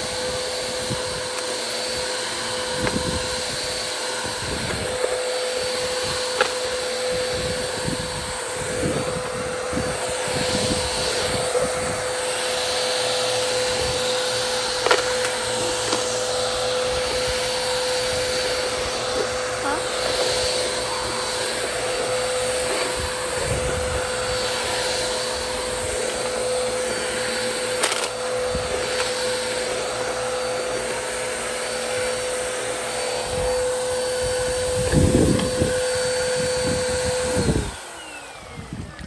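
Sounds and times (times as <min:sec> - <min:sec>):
vacuum cleaner motor whine: 0:00.0 - 0:39.0.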